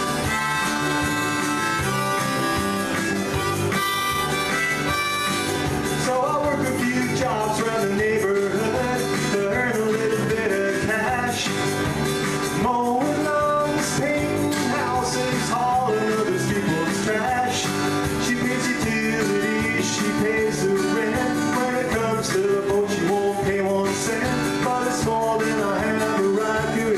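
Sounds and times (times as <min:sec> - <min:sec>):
harmonica with bent notes: 0:00.0 - 0:06.4
strummed acoustic guitar: 0:00.0 - 0:26.9.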